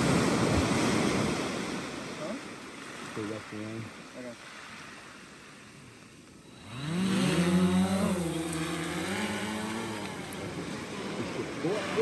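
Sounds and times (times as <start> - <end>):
gentle surf hiss: 0.0 - 12.0
drone propellers buzzing: 6.5 - 12.0.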